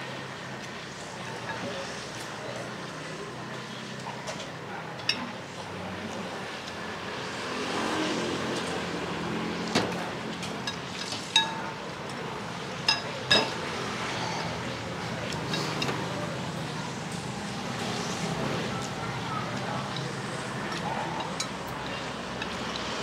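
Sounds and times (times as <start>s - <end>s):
street traffic hum: 0.0s - 23.0s
utensils clinking against bowls: 19.8s - 22.8s.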